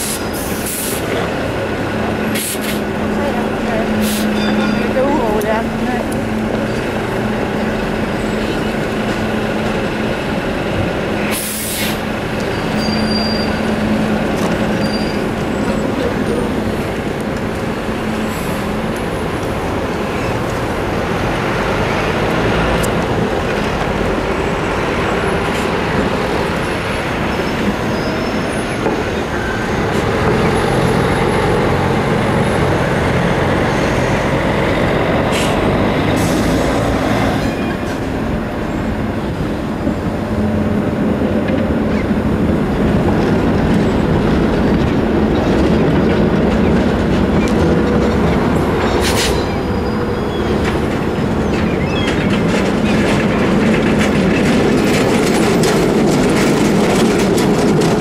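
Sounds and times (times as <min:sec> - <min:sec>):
air brakes hissing: 0:00.0 - 0:01.1, 0:02.3 - 0:02.9, 0:04.0 - 0:04.6, 0:11.3 - 0:12.1, 0:35.3 - 0:36.8
buses and tram running: 0:00.0 - 0:58.0.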